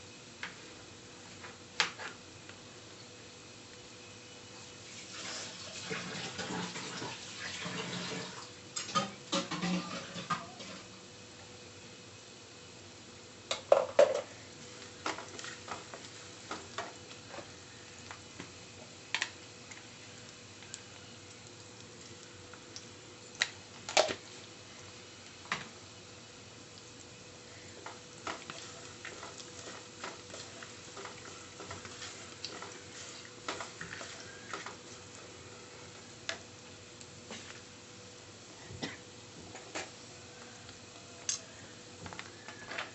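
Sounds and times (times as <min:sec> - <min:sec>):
faint steady hum: 0:00.0 - 0:42.9
onions sizzling in oil: 0:00.0 - 0:42.9
spatula scraping and knocking pan: 0:08.9 - 0:10.8, 0:28.2 - 0:34.8.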